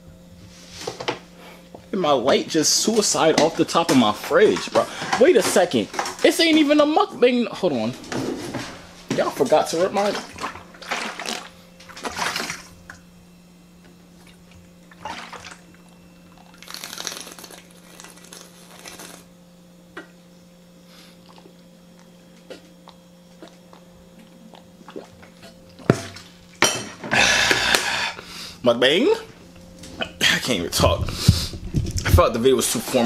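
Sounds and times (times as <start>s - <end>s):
steady low hum: 0.0s - 33.0s
person gulping water: 10.4s - 12.6s, 21.1s - 26.3s.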